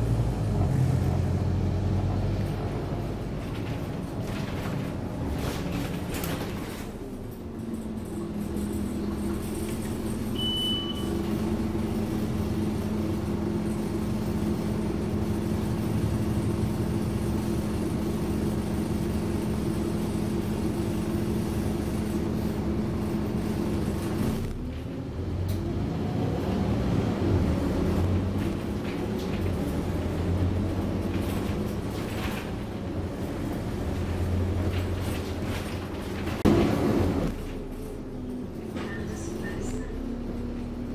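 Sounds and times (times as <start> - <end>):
bus diesel engine: 0.0 - 40.9
short high beep: 10.4 - 11.1.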